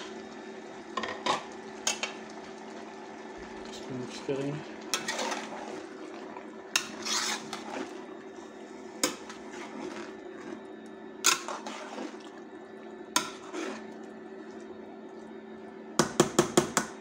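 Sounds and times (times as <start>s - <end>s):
steady low hum: 0.0s - 16.8s
wet scraping of food: 4.6s - 14.8s.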